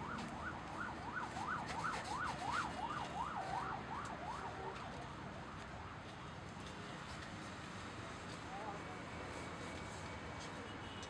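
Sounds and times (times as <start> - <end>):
emergency siren yelping: 0.0 - 4.8.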